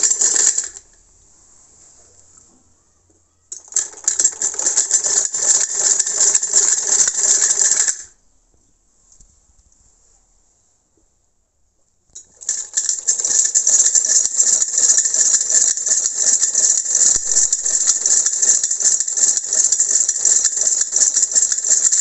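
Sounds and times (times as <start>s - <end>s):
sewing machine clatter: 0.0s - 0.9s, 3.5s - 8.1s, 12.2s - 22.0s.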